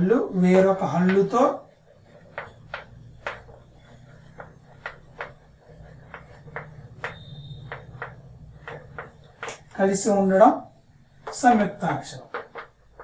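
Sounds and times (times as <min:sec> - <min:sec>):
chalk tapping and scraping on chalkboard: 0:00.4 - 0:13.0
high-pitched chalk squeak: 0:00.9 - 0:09.5.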